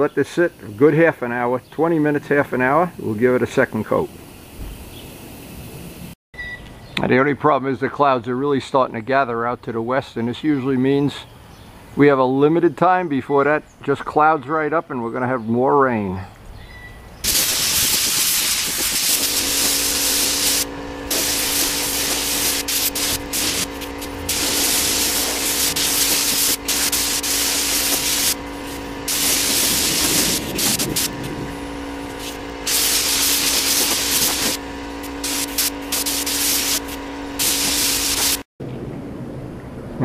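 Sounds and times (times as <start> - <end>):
spray gun hissing: 17.2 - 38.5
steady hum: 17.2 - 38.5.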